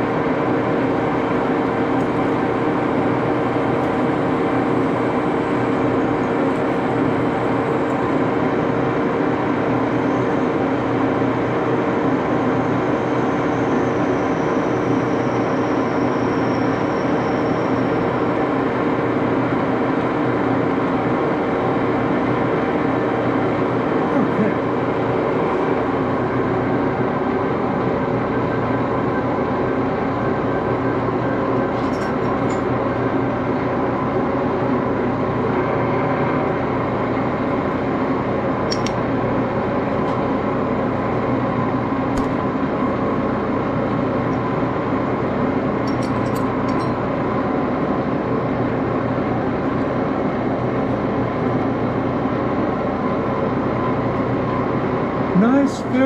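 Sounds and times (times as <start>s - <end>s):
lathe motor hum: 0.0s - 56.0s
light metallic clicks: 38.7s - 39.0s.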